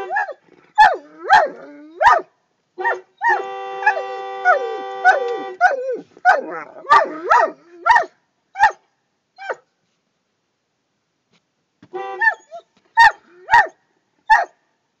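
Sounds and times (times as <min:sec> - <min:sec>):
dog whining: 0:00.0 - 0:02.2, 0:04.5 - 0:08.0.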